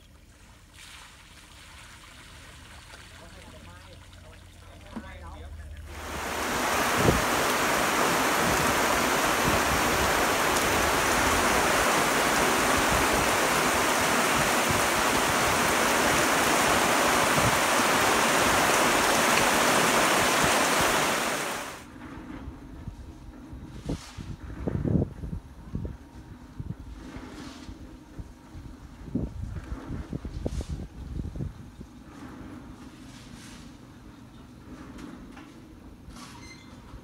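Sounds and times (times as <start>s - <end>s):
heavy rain pouring: 5.9s - 21.9s.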